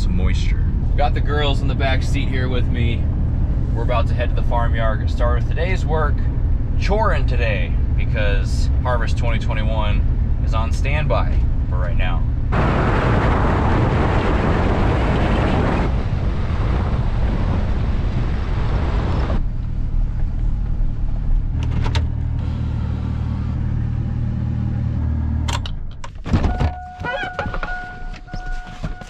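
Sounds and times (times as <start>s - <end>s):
truck engine hum: 0.0s - 29.0s
clunks: 25.4s - 29.0s
tyre noise on gravel road: 26.5s - 29.0s.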